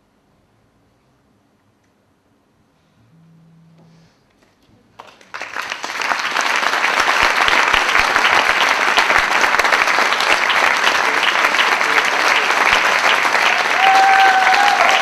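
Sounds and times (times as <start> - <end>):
audience applause: 5.0 - 15.0.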